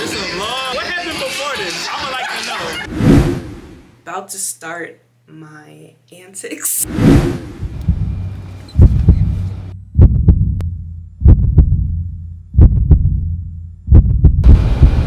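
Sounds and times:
steady low hum: 6.9 - 15.0
deep double thumps: 7.1 - 15.0.

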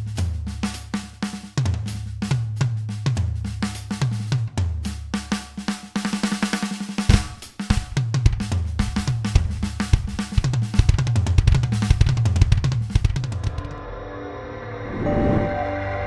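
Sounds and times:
electronic drum kit groove: 0.0 - 13.8
bass line: 13.3 - 16.0.

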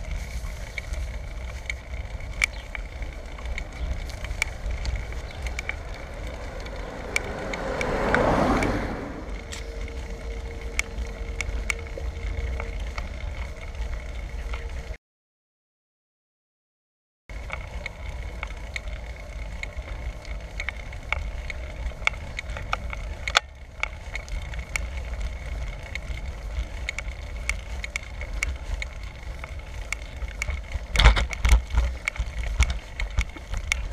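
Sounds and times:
bicycle rattling clicks: 0.0 - 15.0, 17.3 - 33.9
wind and road rumble: 0.0 - 15.0, 17.3 - 33.9
faint high whine: 8.6 - 15.0
bicycle jolt: 20.5 - 33.9.

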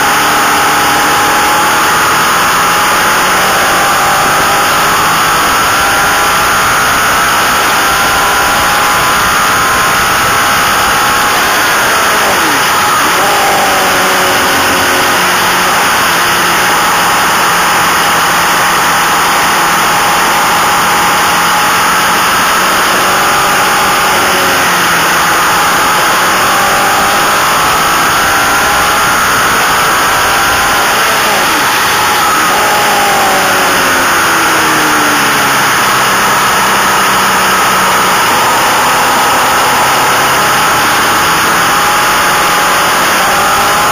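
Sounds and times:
motorcycle engine revving: 0.0 - 43.9.

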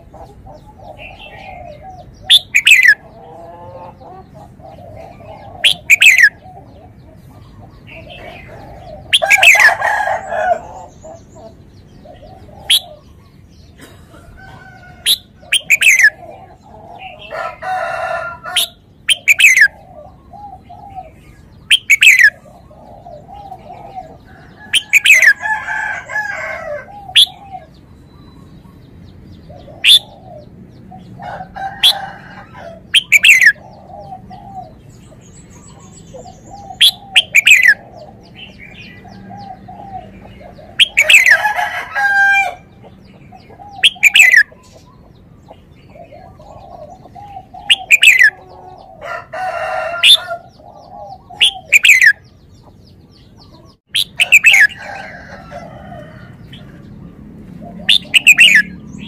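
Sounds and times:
longer fuller bird calls: 0.0 - 14.0, 14.6 - 57.0, 57.6 - 59.0
sharp downward-sweeping bird calls: 1.0 - 3.9, 5.4 - 6.4, 8.2 - 11.0, 15.0 - 16.2, 17.3 - 19.8, 21.6 - 22.4, 24.6 - 25.5, 26.8 - 27.5, 29.6 - 30.3, 32.9 - 33.7, 35.6 - 37.9, 40.7 - 42.6, 43.6 - 44.6, 46.6 - 48.6, 49.6 - 50.4, 51.0 - 52.3, 53.5 - 55.1, 57.7 - 59.0.

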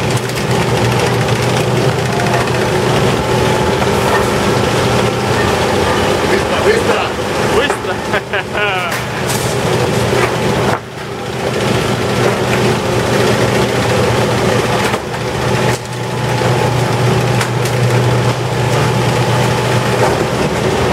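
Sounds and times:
machinery hum with faint whine: 0.0 - 20.9.

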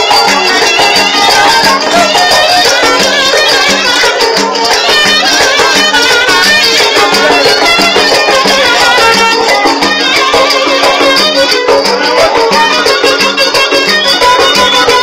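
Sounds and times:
folk dance tune on violin: 0.0 - 15.0.

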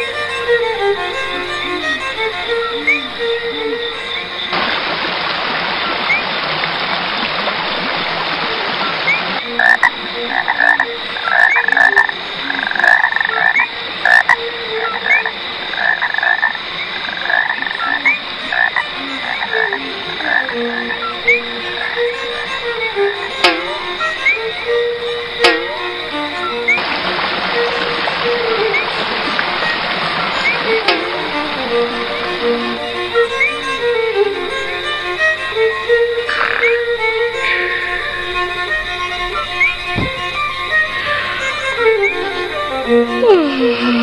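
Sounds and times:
frogs croaking: 0.0 - 44.0
steady hiss: 9.4 - 44.0.

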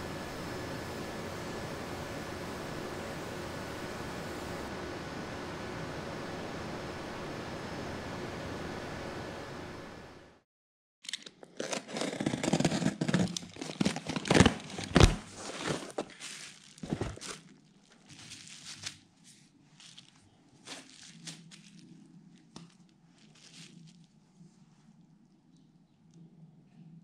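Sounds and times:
bubble wrap crinkling: 11.6 - 24.3.

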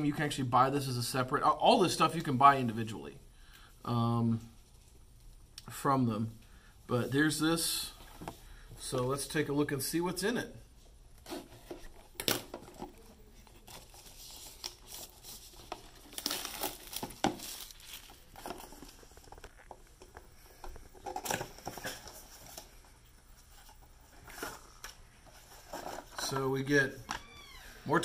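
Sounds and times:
shrink wrap crinkling and ripping: 12.2 - 20.2.

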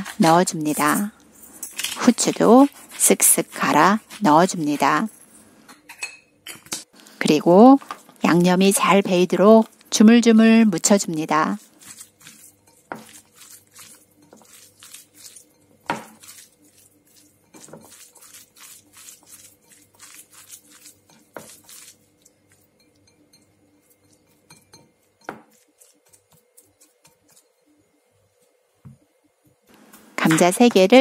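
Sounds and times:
hands kneading meat in a bowl: 2.0 - 5.1, 7.6 - 27.6.

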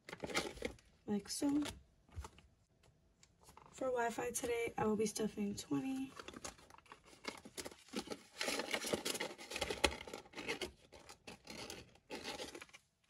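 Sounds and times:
paper bill rustling and scraping: 6.1 - 12.9.

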